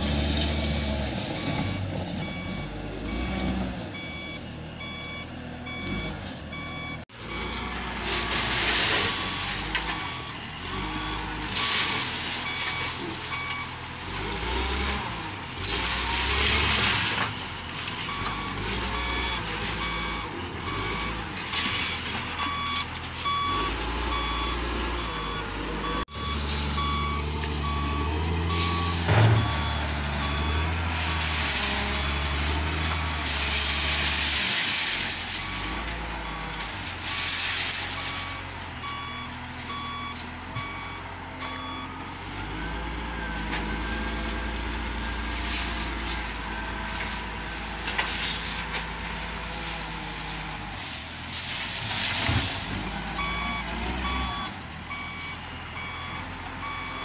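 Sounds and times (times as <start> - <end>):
diesel engine running: 0.0 - 57.0
reversing alarm beeping: 1.4 - 15.0, 18.0 - 46.1, 53.1 - 57.0.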